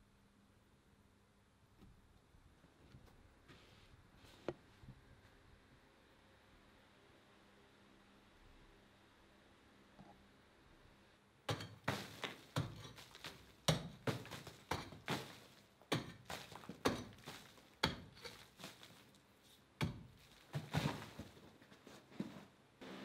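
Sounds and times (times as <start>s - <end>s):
pick striking rock: 11.5s - 19.2s, 19.8s - 21.5s.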